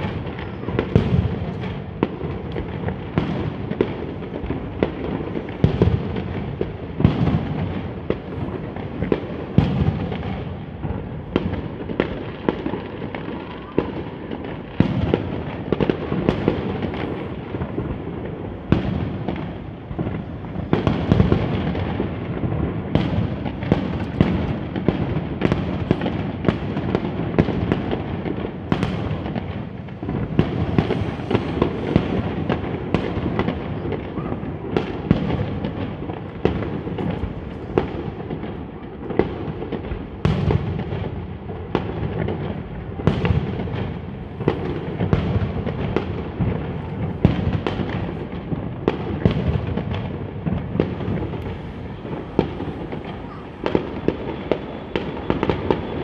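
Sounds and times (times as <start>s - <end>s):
fireworks bangs and booms: 0.0s - 56.0s.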